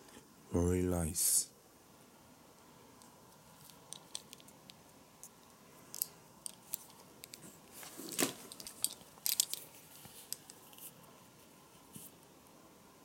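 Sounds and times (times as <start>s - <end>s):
belt buckle clicks and creaks: 8.5s - 10.6s.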